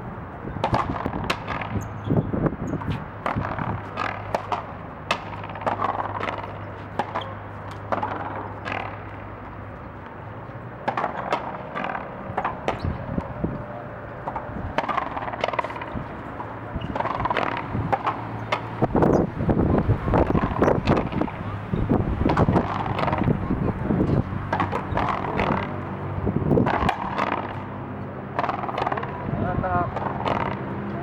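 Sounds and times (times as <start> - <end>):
ball cracking off racquets and wall: 0.6 - 9.4, 10.8 - 13.3, 14.2 - 19.2, 20.1 - 23.4, 24.5 - 27.7, 28.3 - 29.2, 29.9 - 30.7.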